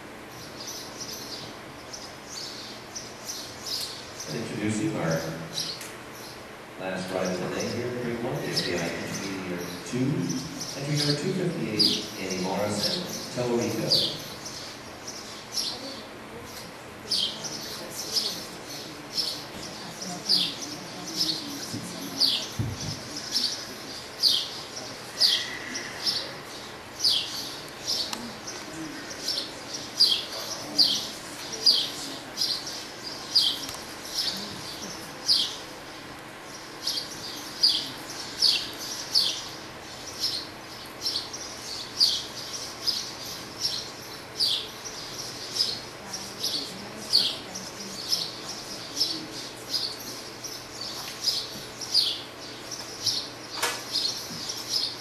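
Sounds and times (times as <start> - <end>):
low background hum: 0.0 - 55.0
small bird chirping: 0.3 - 4.4, 22.2 - 35.7.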